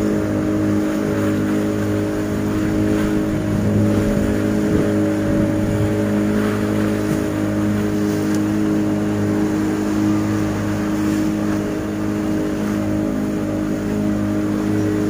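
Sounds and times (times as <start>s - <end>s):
boat engine droning: 0.0s - 15.0s
water wash: 0.0s - 15.0s.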